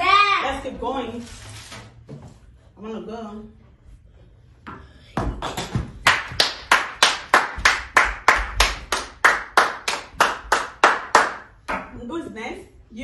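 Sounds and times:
hands clapping: 0:05.4 - 0:11.9.

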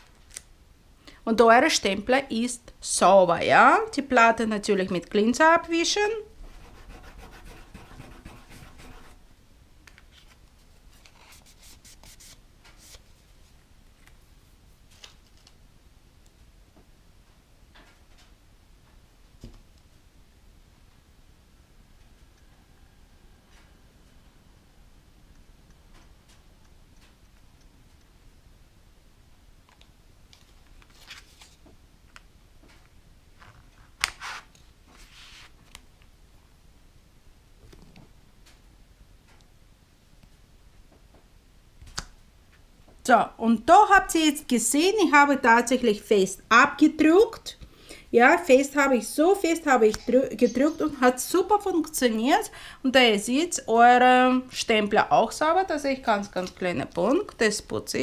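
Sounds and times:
pad rubbing on metal plate: 0:06.5 - 0:09.2.

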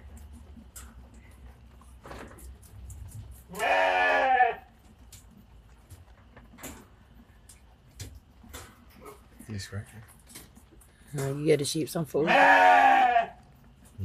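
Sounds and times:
faint clicks and rustles: 0:00.0 - 0:12.0
sheep bleating: 0:03.5 - 0:04.7, 0:12.2 - 0:13.4.

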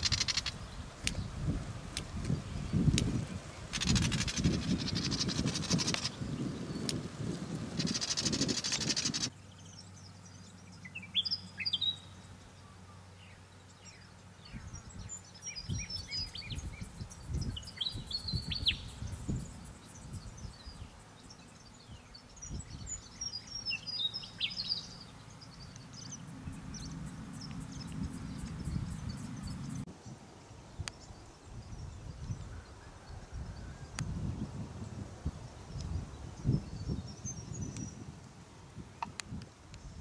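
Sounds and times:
wind on microphone: 0:00.0 - 0:09.3, 0:14.5 - 0:20.9, 0:22.3 - 0:23.2, 0:26.0 - 0:40.0
bird singing high chirps: 0:07.8 - 0:29.9.

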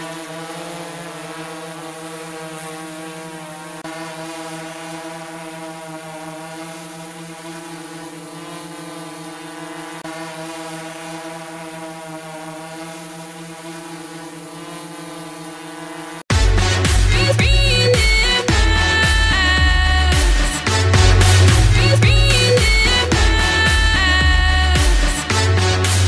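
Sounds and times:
drone buzzing hum: 0:11.9 - 0:26.0.

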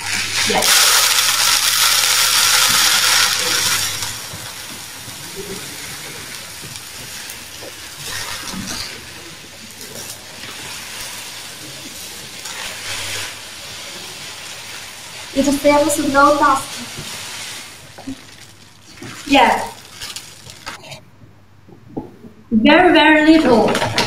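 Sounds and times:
litter pellets pouring into tray: 0:00.0 - 0:04.2.

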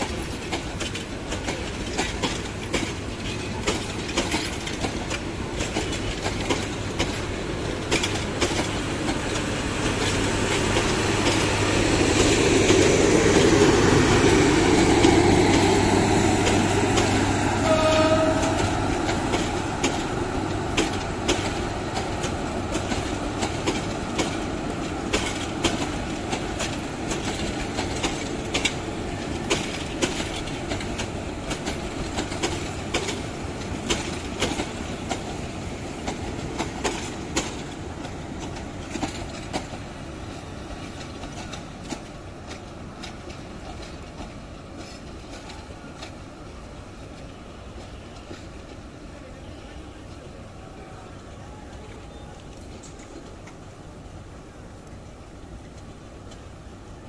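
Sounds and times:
train wheels rumbling and clicking: 0:00.0 - 0:57.0
train horn blast: 0:17.5 - 0:18.9.

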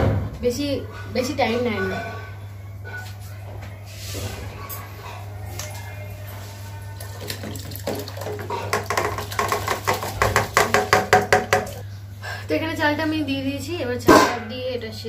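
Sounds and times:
rice and water splashing into pot: 0:07.0 - 0:11.0.

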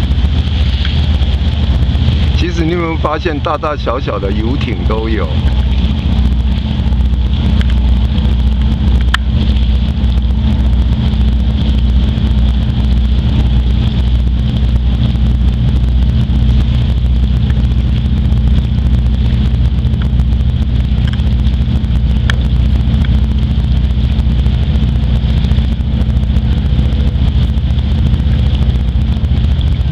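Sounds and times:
boat engine drone: 0:00.0 - 0:29.9
wind buffeting microphone: 0:00.0 - 0:29.9.

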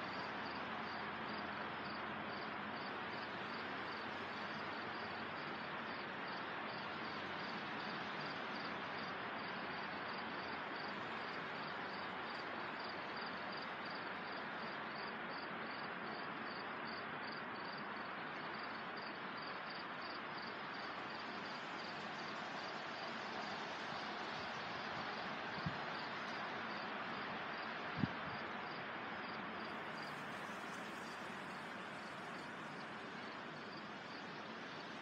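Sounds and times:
wind through leafy trees: 0:00.0 - 0:35.0.

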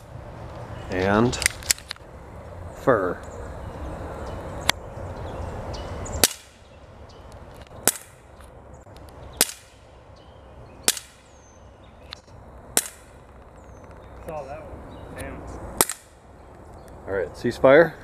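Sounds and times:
bb pistol shots: 0:06.2 - 0:06.6, 0:07.8 - 0:08.2, 0:09.4 - 0:09.8, 0:10.8 - 0:11.3, 0:12.8 - 0:13.2, 0:15.8 - 0:16.2.

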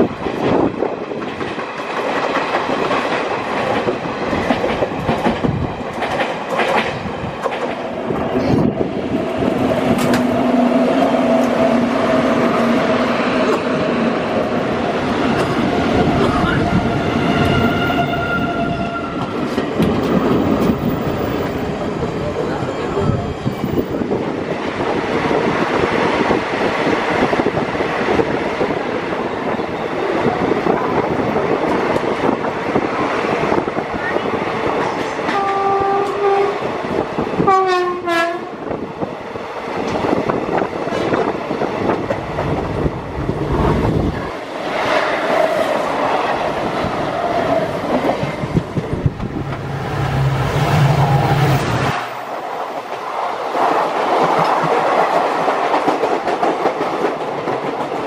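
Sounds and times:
train wheels rumbling and rattling: 0:00.0 - 0:58.0
train horn: 0:16.8 - 0:19.4, 0:35.3 - 0:36.6, 0:37.4 - 0:38.6.

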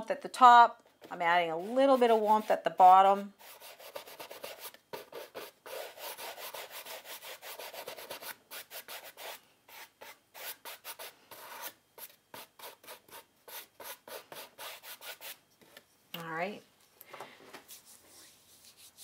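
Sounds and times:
paintbrush scratching on canvas: 0:01.5 - 0:15.4.

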